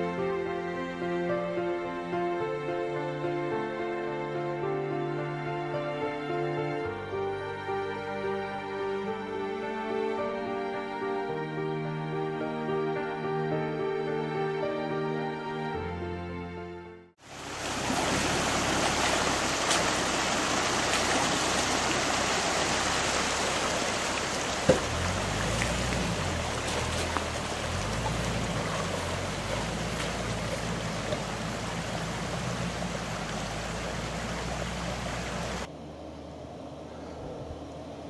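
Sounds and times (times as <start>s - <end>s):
water rushing over rocks: 17.2s - 35.7s
vehicle engine running low: 17.3s - 38.0s.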